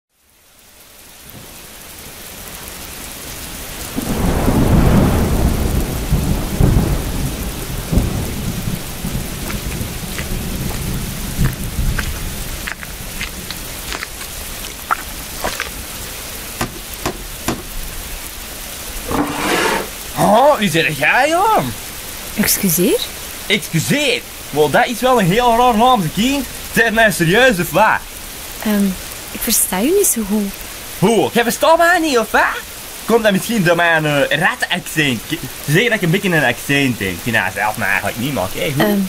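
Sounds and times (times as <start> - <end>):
rain: 0.1 - 39.0
deep roll of thunder: 3.9 - 12.0
sharp drips: 7.9 - 17.9.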